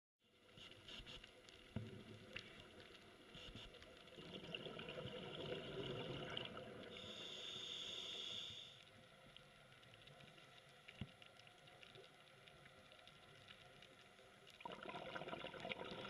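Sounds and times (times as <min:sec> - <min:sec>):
underwater exhale bubbling: 0:04.1 - 0:08.8, 0:14.6 - 0:16.0
faint clicks: 0:06.5 - 0:14.6
regulator hiss: 0:06.9 - 0:09.0.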